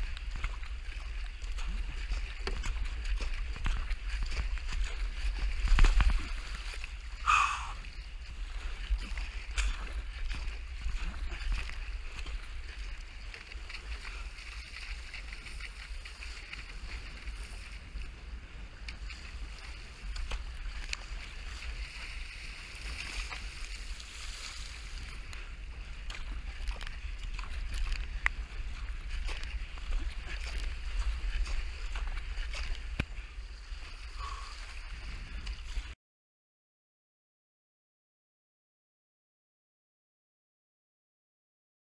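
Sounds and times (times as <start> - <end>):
choppy seawater splashing past hull: 0.0 - 36.0
wind buffeting microphone: 0.0 - 36.0.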